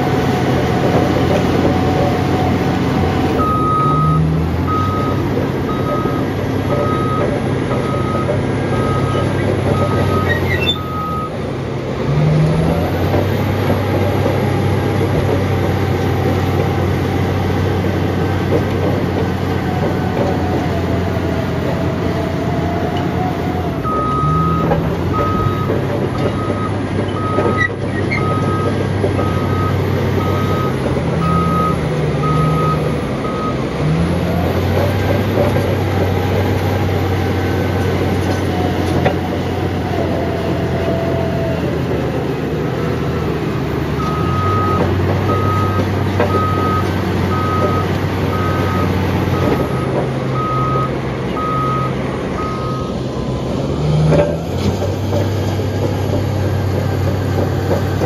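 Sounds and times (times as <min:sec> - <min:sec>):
bulldozer diesel engine droning: 0:00.0 - 0:58.0
reversing alarm beeping: 0:01.6 - 0:11.4, 0:20.1 - 0:34.5, 0:44.0 - 0:53.4.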